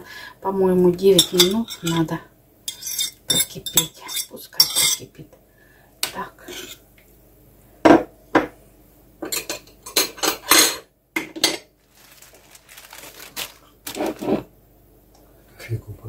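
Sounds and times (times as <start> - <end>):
dishes and cutlery clinking: 1.2 - 2.1, 2.7 - 5.1, 9.2 - 11.7.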